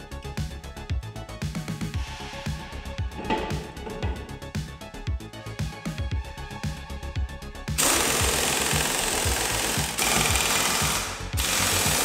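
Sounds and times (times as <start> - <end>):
background music with beat: 0.0 - 12.0
power tool running: 7.8 - 12.0.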